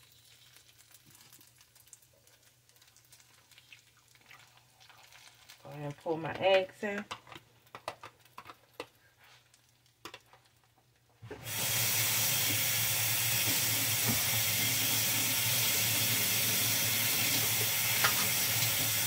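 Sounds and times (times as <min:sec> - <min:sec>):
tap water running into sink: 0:11.3 - 0:19.0.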